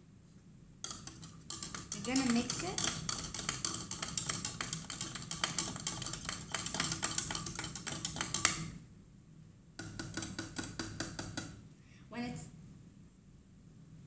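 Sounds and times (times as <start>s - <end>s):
spoon stirring in plastic cup: 0.8s - 8.8s, 9.8s - 11.6s.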